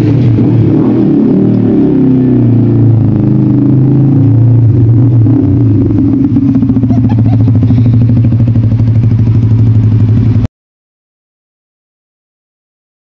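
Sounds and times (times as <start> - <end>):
motorcycles riding past: 0.0 - 10.5
motorcycle engine puttering: 5.5 - 10.5.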